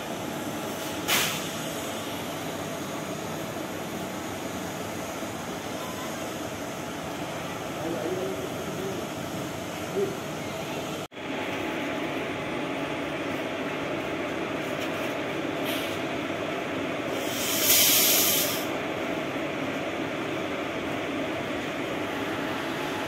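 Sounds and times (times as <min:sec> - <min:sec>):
train rumble and hum: 0:00.0 - 0:23.0
burst of hissing: 0:17.2 - 0:18.7.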